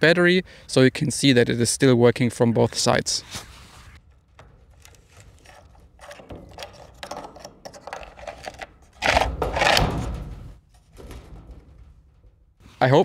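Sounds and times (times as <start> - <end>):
small clicks and scrapes: 3.3 - 9.9
battery pack scraping slide: 7.7 - 9.8.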